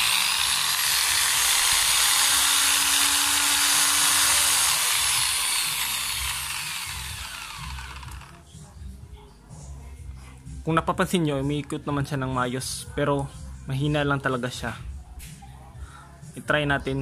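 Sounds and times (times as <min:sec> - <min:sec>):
angle grinder running: 0:00.0 - 0:08.4
grinder winding down whine: 0:00.0 - 0:08.4.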